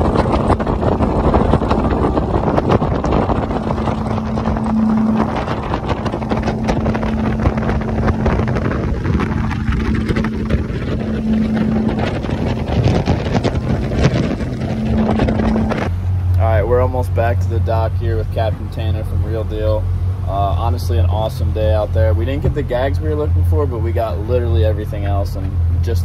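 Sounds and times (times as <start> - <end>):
wind buffeting microphone: 0.0 - 25.9
outboard motors humming: 0.0 - 26.0.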